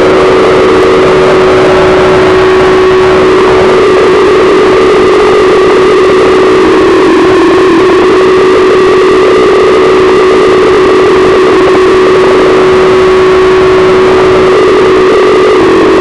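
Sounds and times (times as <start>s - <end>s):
distorted electronic noise: 0.0s - 16.0s
steady pitched drone: 0.0s - 16.0s.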